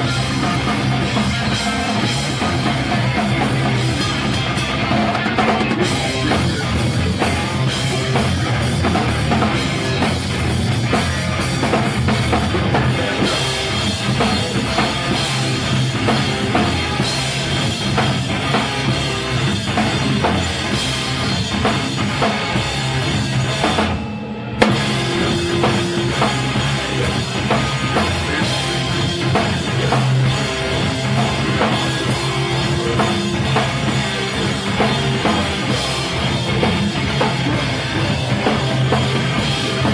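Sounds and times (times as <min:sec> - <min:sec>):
drum kit pounding: 0:00.0 - 0:39.9
rock band playing live: 0:00.0 - 0:39.9.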